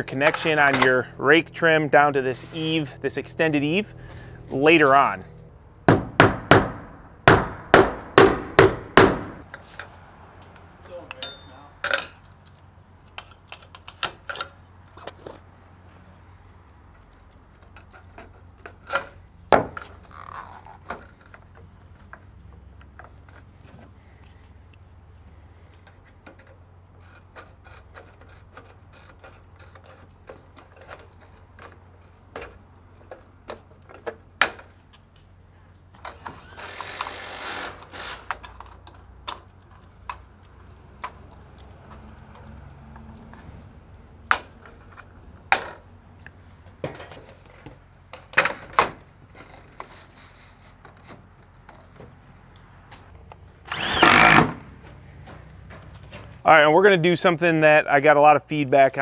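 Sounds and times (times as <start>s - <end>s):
metal scraping: 0.0s - 5.5s.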